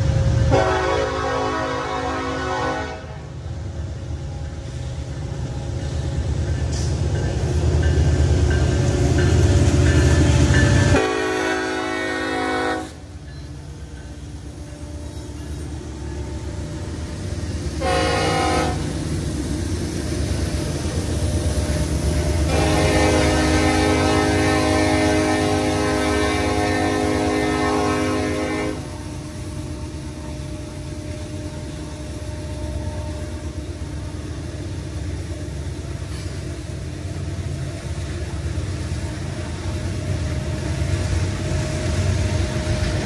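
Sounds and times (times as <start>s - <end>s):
diesel locomotive engines rumbling: 0.0s - 43.0s
train horn blasts: 0.5s - 3.4s, 10.8s - 13.0s, 17.8s - 19.0s, 22.4s - 29.2s.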